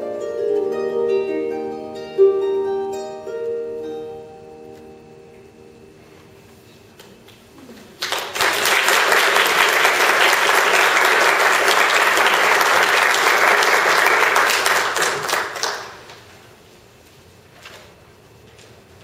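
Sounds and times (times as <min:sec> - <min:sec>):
audience applauding: 0:07.9 - 0:16.3.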